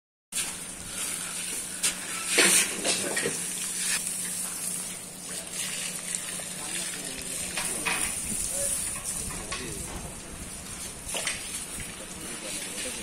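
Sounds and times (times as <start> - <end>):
hose water spraying: 0.3 - 13.0
water splashes: 2.3 - 9.8.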